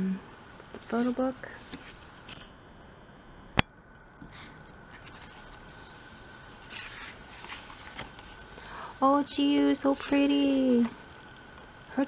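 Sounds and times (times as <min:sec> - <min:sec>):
paper pages rustling: 0:00.7 - 0:02.5, 0:04.8 - 0:11.1.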